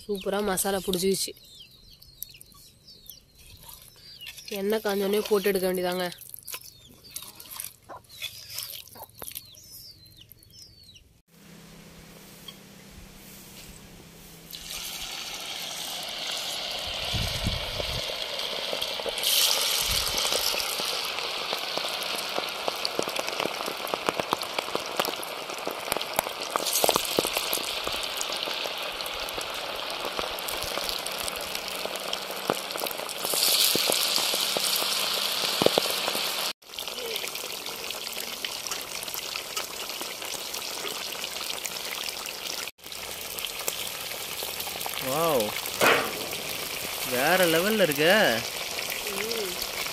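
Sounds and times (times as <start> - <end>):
fish sizzling in hot oil: 3.9 - 7.6, 14.4 - 49.9.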